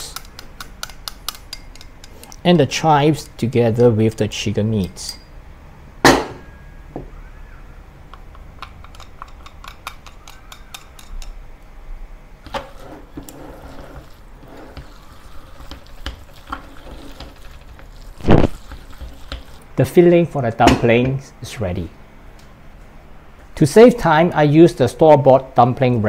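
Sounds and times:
chopsticks stirring wet filling: 0:12.7 - 0:19.7.

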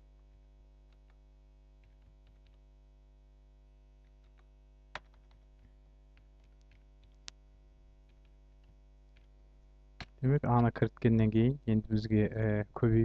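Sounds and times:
low electrical hum: 0:00.0 - 0:13.0
keyboard typing clicks: 0:01.8 - 0:02.6.

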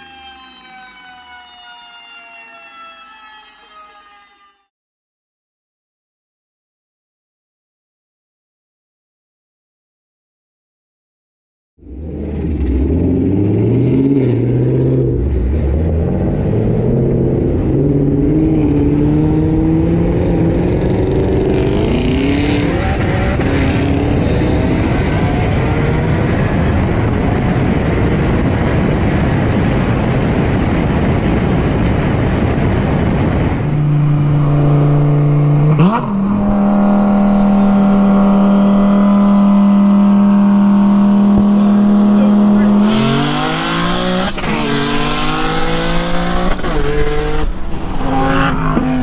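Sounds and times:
car engine accelerating: 0:11.8 - 0:49.0
engine steady drone: 0:11.8 - 0:49.0
wind roar at high speed: 0:11.8 - 0:49.0.

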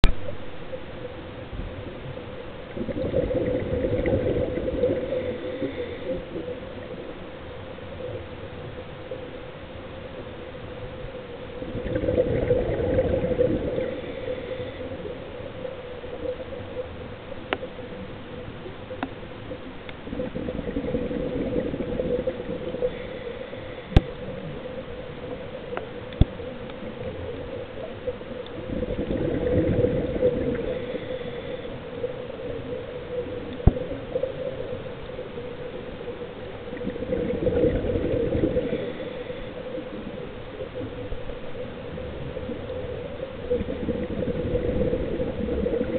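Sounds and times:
steady low hum: 0:00.0 - 0:45.9
diver exhaling bubbles underwater: 0:02.7 - 0:06.6, 0:11.6 - 0:15.1, 0:20.0 - 0:23.2, 0:28.6 - 0:31.6, 0:36.7 - 0:39.3, 0:43.4 - 0:45.9.

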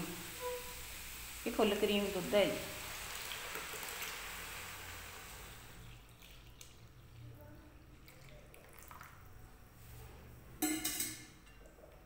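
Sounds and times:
milk trickling and dripping: 0:05.8 - 0:09.4.

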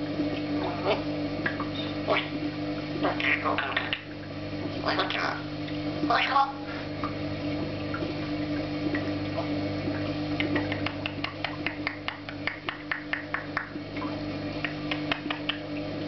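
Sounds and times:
steady low hum: 0:00.0 - 0:16.0
parrot making sharp clicks: 0:10.4 - 0:13.8, 0:14.6 - 0:15.6.

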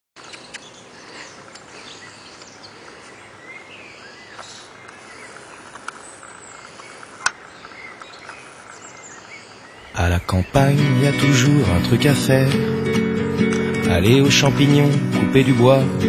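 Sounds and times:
small birds chirping: 0:00.2 - 0:16.0
steady outdoor hiss: 0:00.2 - 0:16.0
sharp clicks: 0:04.4 - 0:08.5, 0:13.5 - 0:13.7.

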